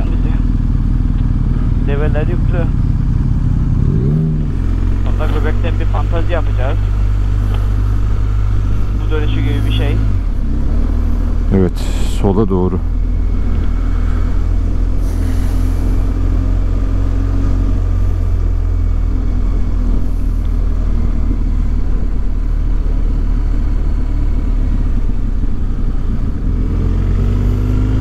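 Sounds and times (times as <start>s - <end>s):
motorcycle engine: 0.0s - 28.0s
wind rumble on microphone: 12.9s - 28.0s.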